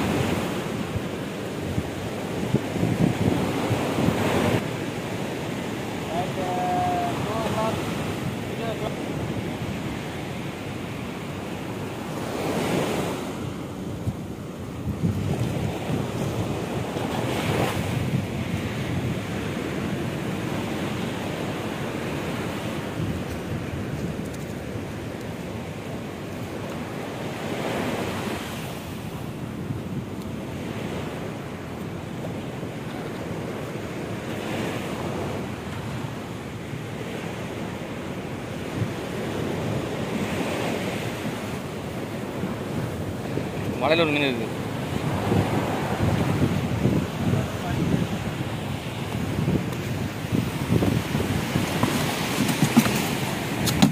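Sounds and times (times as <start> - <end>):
water rushing: 0.0 - 2.2, 3.4 - 9.6, 40.2 - 53.9
wind buffeting microphone: 0.0 - 53.9.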